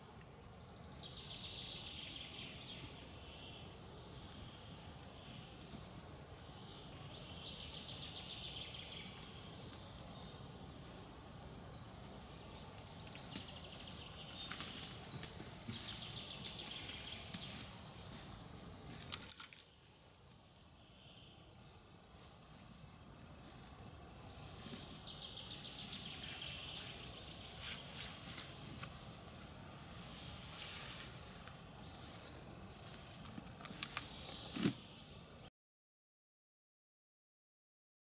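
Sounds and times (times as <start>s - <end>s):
steady low hiss: 0.0s - 35.5s
small birds singing trills: 0.4s - 29.1s, 30.5s - 35.4s
branches snapping underfoot: 14.4s - 15.9s, 18.9s - 20.7s, 32.9s - 34.8s.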